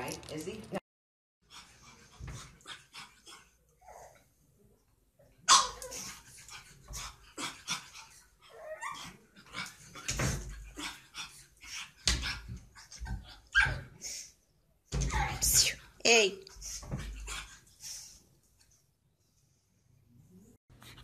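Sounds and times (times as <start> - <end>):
puppy barking: 5.5 - 6.0.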